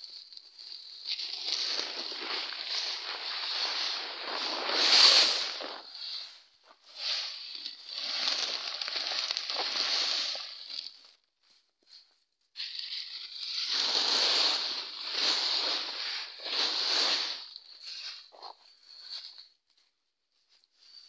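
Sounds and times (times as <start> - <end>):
dry pods spilling from sack: 1.2 - 6.1, 7.0 - 10.9, 13.7 - 17.5.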